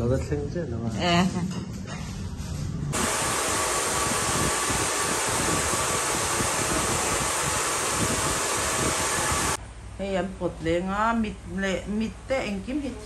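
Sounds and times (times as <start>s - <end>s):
hair dryers blowing: 2.9s - 9.6s.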